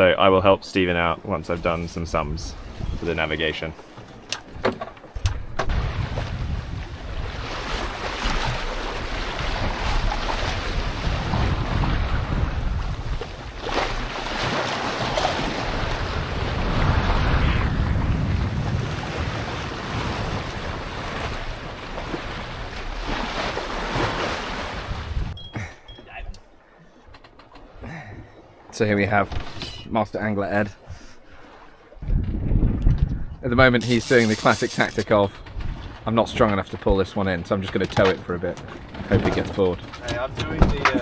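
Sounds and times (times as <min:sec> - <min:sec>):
wind buffeting microphone: 0:05.2 - 0:14.2, 0:15.0 - 0:25.4, 0:32.0 - 0:33.8
sea waves rushing: 0:05.7 - 0:26.8, 0:33.6 - 0:37.5.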